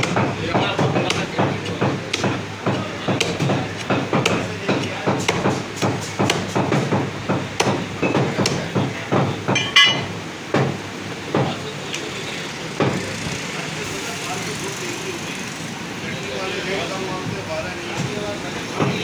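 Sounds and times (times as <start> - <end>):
cleaver chopping onto wooden block: 0.0 - 10.8
metal clank with ring: 9.6 - 10.2.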